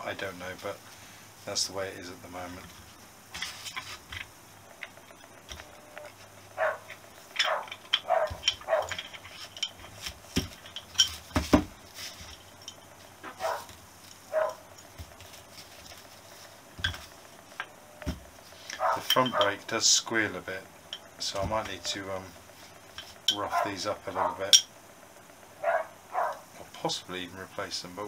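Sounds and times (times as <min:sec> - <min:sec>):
metal clicks and scrapes: 0:06.7 - 0:11.3.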